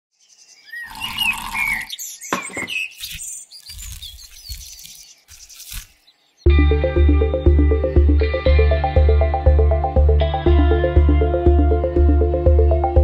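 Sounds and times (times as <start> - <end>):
bird-like chirps and whistles: 0.2 - 5.8
rustling and clicking effects: 2.8 - 6.0
music with steady beat: 6.5 - 13.0.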